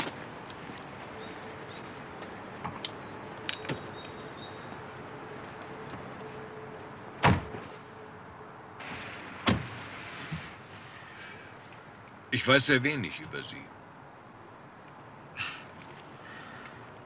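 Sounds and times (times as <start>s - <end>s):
car doors slamming shut: 7.2s - 7.7s, 8.8s - 10.5s.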